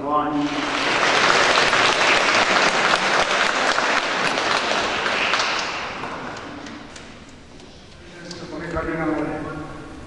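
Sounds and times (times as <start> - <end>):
congregation applauding: 0.3 - 7.1.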